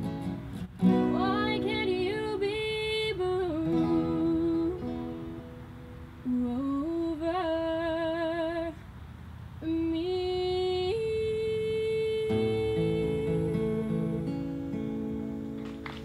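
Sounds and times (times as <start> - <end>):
acoustic guitar strum: 0.0 - 6.4, 12.3 - 16.0
young woman singing: 0.8 - 8.9, 9.6 - 15.2.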